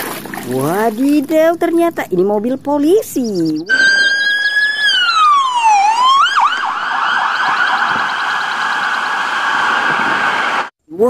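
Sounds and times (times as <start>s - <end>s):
police siren wailing and yelping: 3.6s - 10.7s.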